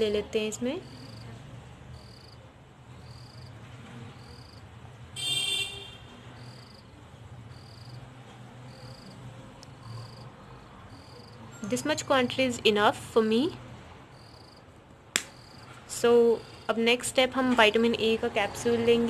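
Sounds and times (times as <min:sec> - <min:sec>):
cricket chirping: 0:00.8 - 0:01.3, 0:02.0 - 0:02.4, 0:03.0 - 0:03.6, 0:04.2 - 0:04.6, 0:06.4 - 0:06.9, 0:07.5 - 0:08.0, 0:08.7 - 0:09.2, 0:09.8 - 0:11.8, 0:14.1 - 0:14.7, 0:15.3 - 0:15.7.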